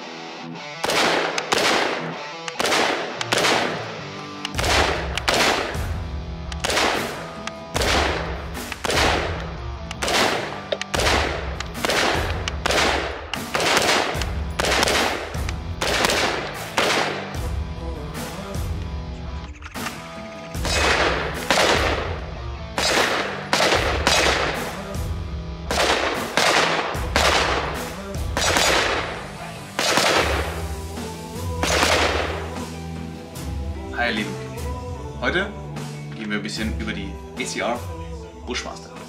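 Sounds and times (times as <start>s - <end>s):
background music with low bass: 0.0s - 39.0s
rifle shots: 0.8s - 17.5s, 19.9s - 25.0s, 25.7s - 30.7s, 31.6s - 32.6s.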